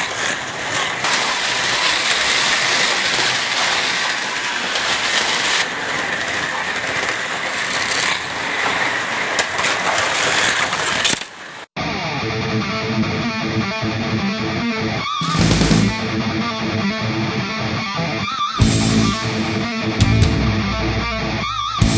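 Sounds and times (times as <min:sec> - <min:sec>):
slot cars whirring on track: 0:00.0 - 0:11.7
guitar music: 0:11.8 - 0:21.9.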